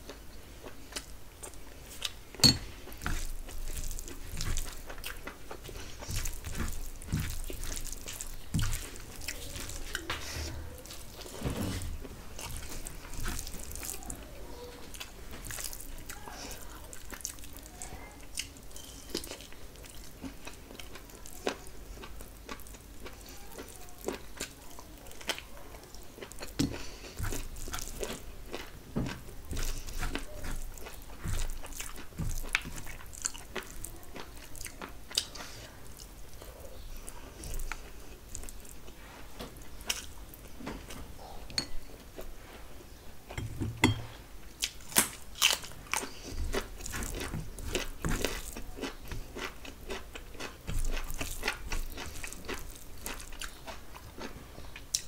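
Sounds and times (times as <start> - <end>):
close chewing: 0.0 - 43.4, 44.4 - 55.0.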